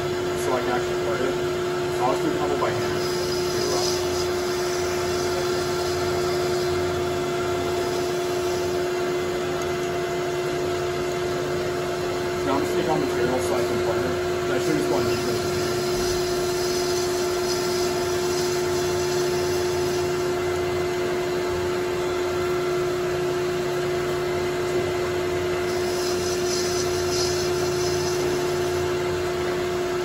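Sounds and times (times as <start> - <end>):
lathe motor and gear whine: 0.0 - 30.0
metal cutting hiss: 2.8 - 6.8, 14.6 - 20.2, 25.7 - 28.8.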